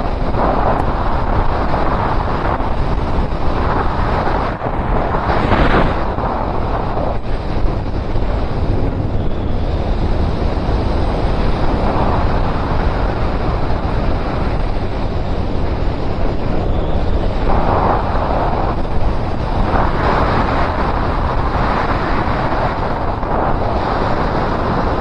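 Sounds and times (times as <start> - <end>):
motorcycle engine drone: 0.0 - 25.0
wind rushing over microphone: 0.0 - 25.0.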